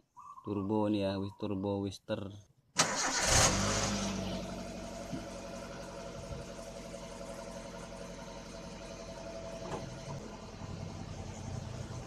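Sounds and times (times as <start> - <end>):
car engine idling: 2.8 - 12.0.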